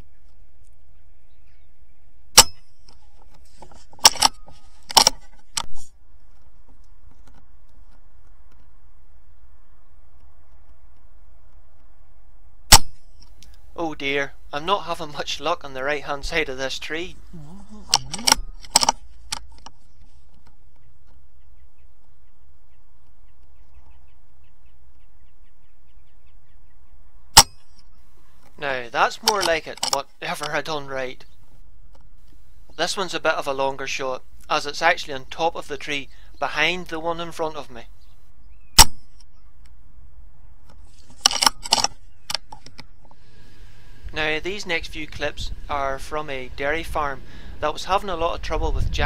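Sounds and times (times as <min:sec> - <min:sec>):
metallic clicks and knocks: 0:17.9 - 0:21.2, 0:29.2 - 0:30.0, 0:40.7 - 0:42.9.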